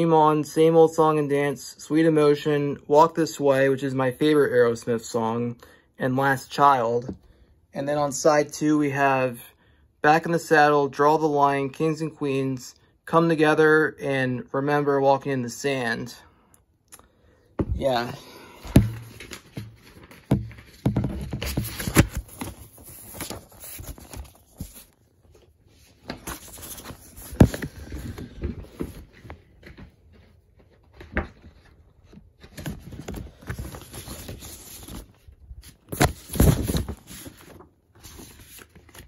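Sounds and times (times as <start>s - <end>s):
vinyl records and jackets rustling: 18.7s - 39.0s.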